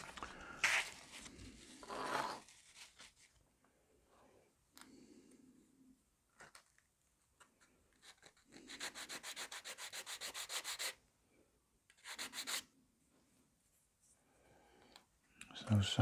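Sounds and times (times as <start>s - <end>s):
hand sanding wood: 8.7s - 11.0s.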